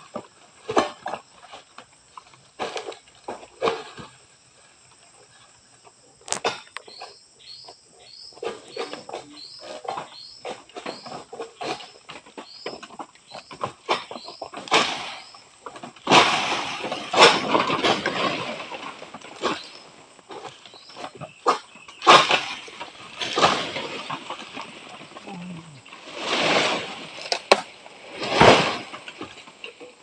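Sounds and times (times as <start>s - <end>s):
palm leaves rustling: 0.0s - 30.0s
fronds cracking and knocking: 6.2s - 7.1s, 8.4s - 30.0s.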